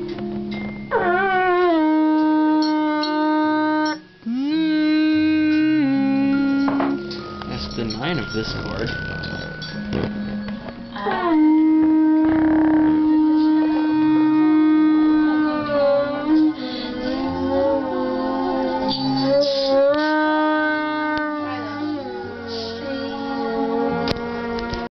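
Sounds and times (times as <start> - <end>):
beer bong blown like a horn: 1.8 - 6.9, 11.2 - 24.9.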